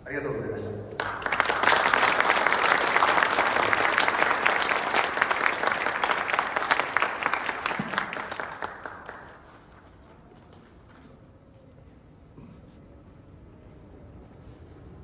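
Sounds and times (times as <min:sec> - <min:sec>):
audience applauding: 0:00.9 - 0:10.5.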